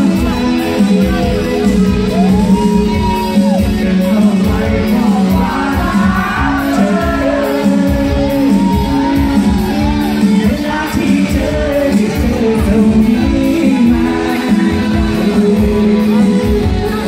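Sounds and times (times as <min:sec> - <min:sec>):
man singing into microphone: 0:00.0 - 0:17.0
pop backing music with beat: 0:00.0 - 0:17.0.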